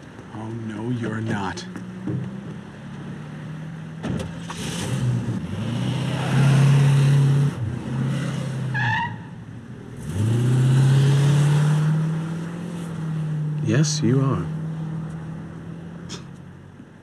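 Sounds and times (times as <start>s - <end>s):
van engine accelerating: 0.4s - 8.7s, 9.8s - 16.5s
car door shutting: 4.0s - 5.0s.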